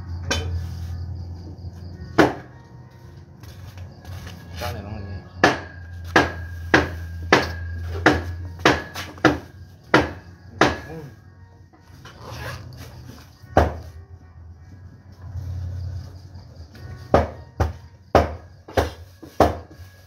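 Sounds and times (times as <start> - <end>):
cleaver chopping on a block: 5.4 - 11.1, 17.2 - 19.7.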